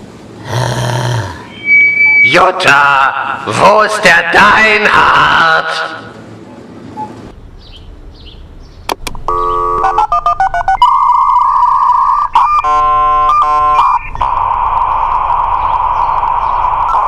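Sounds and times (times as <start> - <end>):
steady modem beep: 1.5 - 2.5, 9.3 - 17.0
dialing tones: 9.3 - 15.9
modem hissing static: 11.8 - 17.0.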